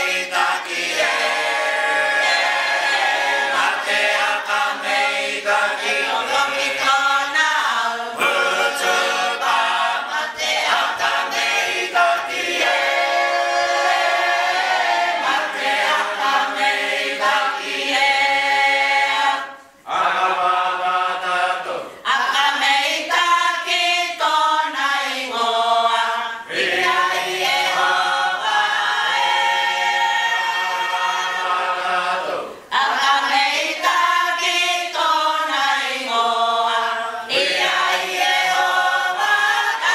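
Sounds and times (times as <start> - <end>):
choir singing a hymn unaccompanied: 0.0 - 39.9.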